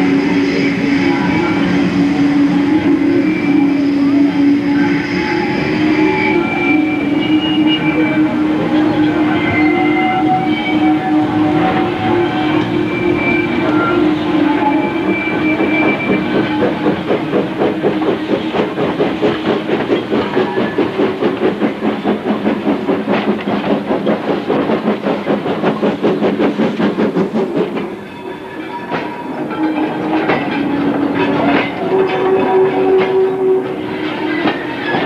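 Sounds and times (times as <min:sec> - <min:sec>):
steam locomotive passing: 0:00.0 - 0:35.0
coaches clicking over rail joints: 0:11.6 - 0:35.0.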